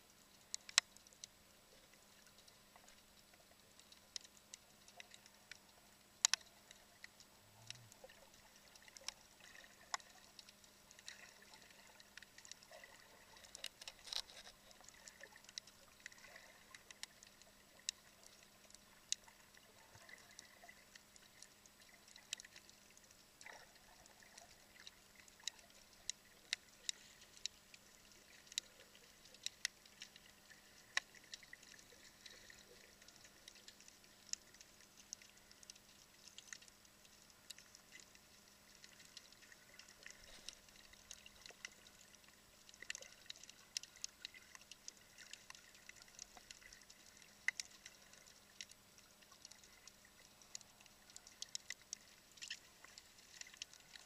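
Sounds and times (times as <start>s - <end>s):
quiet hiss: 0.0s - 54.0s
underwater clicks and crackles: 0.0s - 54.0s.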